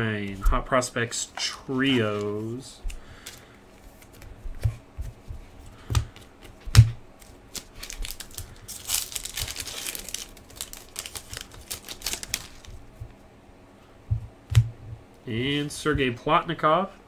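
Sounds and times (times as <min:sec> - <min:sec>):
foil pack tearing and crinkling: 0:07.2 - 0:12.7
cards crackling drawn out: 0:07.2 - 0:12.8.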